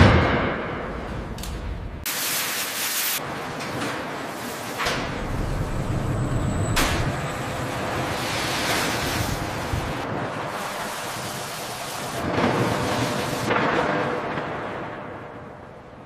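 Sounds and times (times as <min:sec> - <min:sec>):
low rumble: 0:05.2 - 0:07.6.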